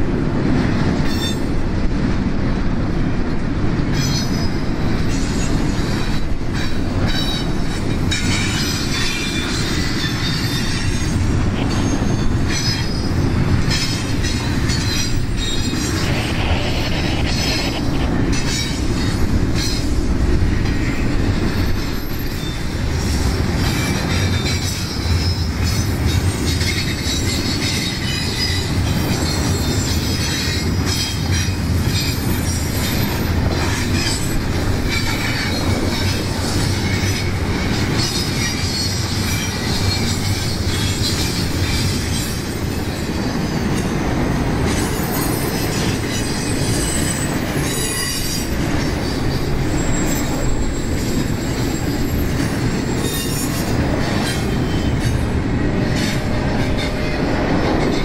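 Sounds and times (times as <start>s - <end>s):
steel wheels rumbling on rail: 0.0s - 58.0s
high flange squeals: 14.3s - 19.8s.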